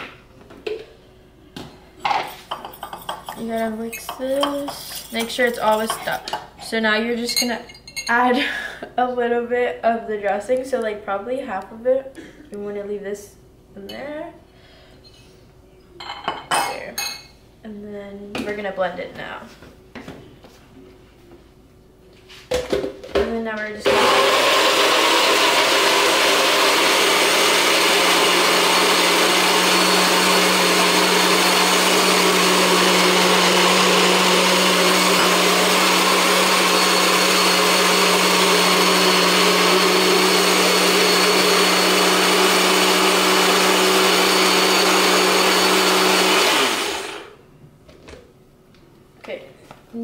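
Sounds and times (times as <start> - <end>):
blender running: 23.8 - 47.4.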